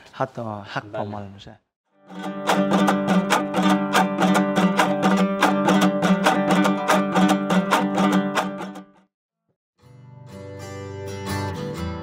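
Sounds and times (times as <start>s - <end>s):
plucked string instrument: 2.0s - 9.1s.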